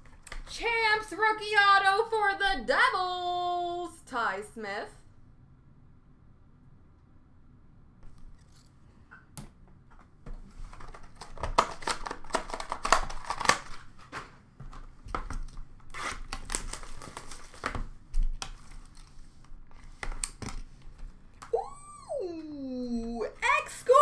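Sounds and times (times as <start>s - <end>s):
packaging crinkling and rustling: 10.3s - 20.9s.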